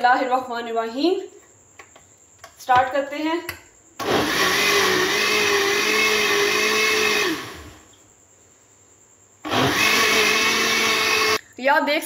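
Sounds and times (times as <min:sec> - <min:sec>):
electric blender motor running: 0:04.0 - 0:07.8, 0:09.5 - 0:11.4.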